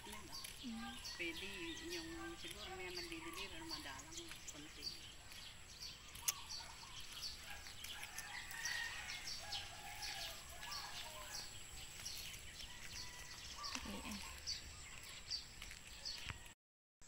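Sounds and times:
chickens calling: 0.0 - 16.4
small birds chirping: 0.0 - 16.5.

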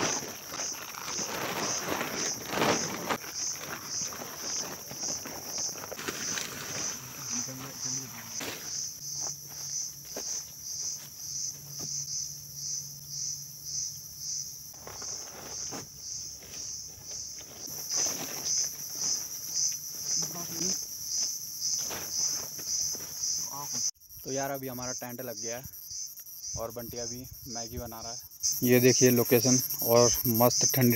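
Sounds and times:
tent rustling: 0.0 - 12.0, 14.7 - 23.3
insects chirring: 0.0 - 30.9.

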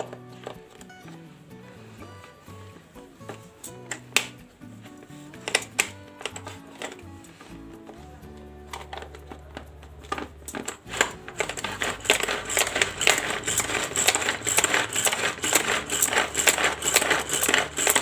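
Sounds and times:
vegetable chopper blades clattering: 8.8 - 18.0.

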